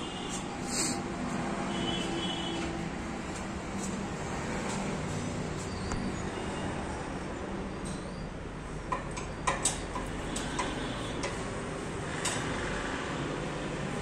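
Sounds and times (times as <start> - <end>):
steady background noise: 0.0 - 14.0
metal tool clicks and taps: 8.9 - 11.4, 12.2 - 12.5.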